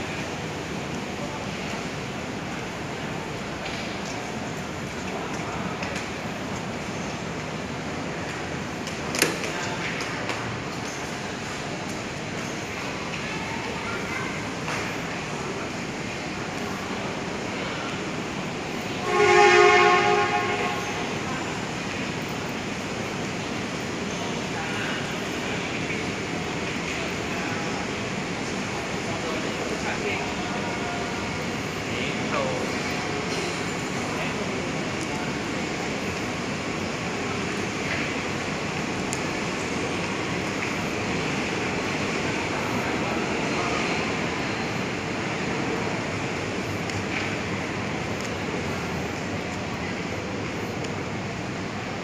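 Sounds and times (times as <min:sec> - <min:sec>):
station hall hum: 0:00.0 - 0:52.0
train horn blast: 0:19.0 - 0:21.2.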